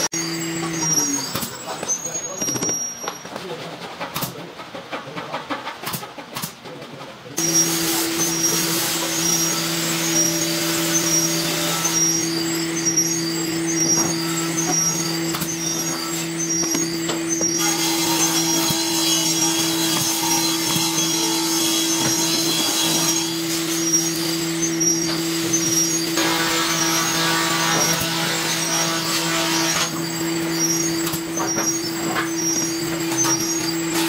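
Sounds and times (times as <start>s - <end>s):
high-pitched whine: 0.0s - 3.3s, 7.4s - 34.0s
electric motor humming: 7.4s - 34.0s.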